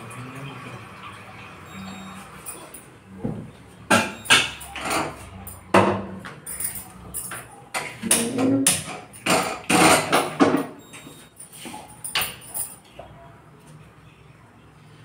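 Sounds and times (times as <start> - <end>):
metal kitchenware knocking and clinking: 7.8 - 10.8.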